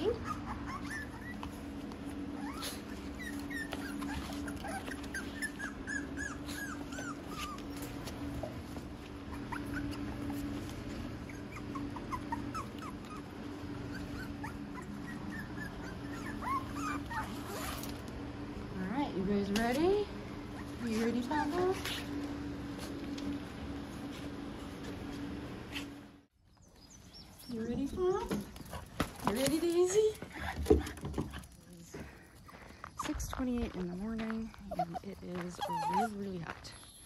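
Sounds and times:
puppies whimpering and squeaking: 0.0 - 18.0, 19.7 - 23.3, 34.0 - 37.0
low hum: 0.0 - 30.6.

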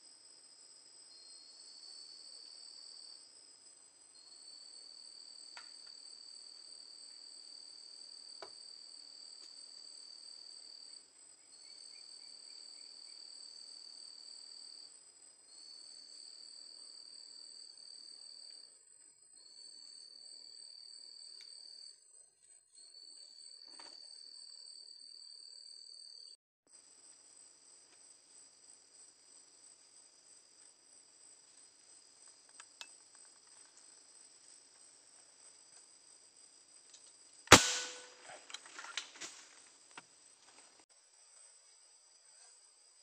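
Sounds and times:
night insects chirring: 0.0 - 18.7
air rifle shot: 37.5 - 38.3.

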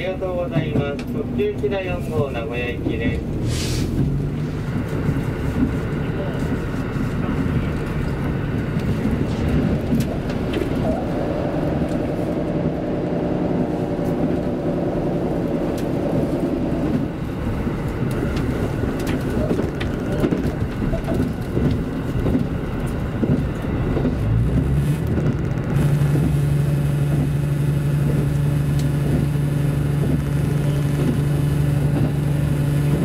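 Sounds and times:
diesel railcar engine: 0.0 - 33.0.

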